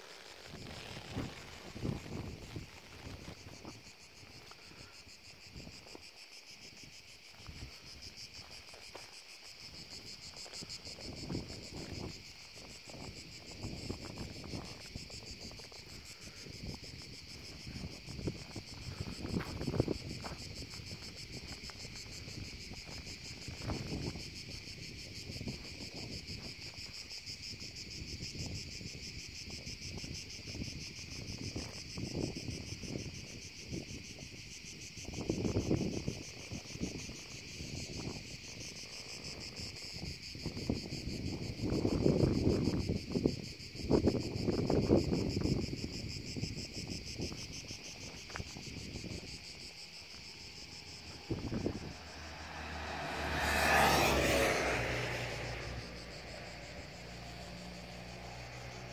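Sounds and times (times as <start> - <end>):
insects chirring: 0.0 - 58.9
wind buffeting microphone: 0.5 - 58.9.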